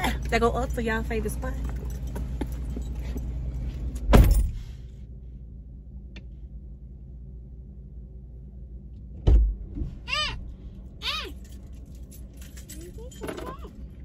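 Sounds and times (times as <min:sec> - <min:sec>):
low rumble in car cabin: 0:00.0 - 0:14.0
car door shutting with thud: 0:04.1 - 0:04.6
young child calling: 0:10.1 - 0:10.4, 0:11.0 - 0:11.4.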